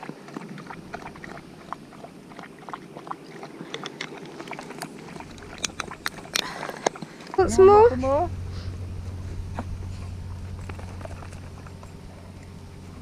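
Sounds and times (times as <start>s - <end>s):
dog lapping water: 0.0s - 8.0s, 9.6s - 13.0s.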